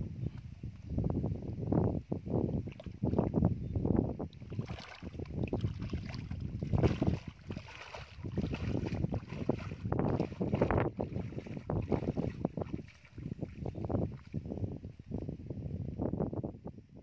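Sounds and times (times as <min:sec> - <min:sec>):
wind noise on microphone: 0:00.0 - 0:17.0
bare feet splashing in water: 0:04.4 - 0:14.4.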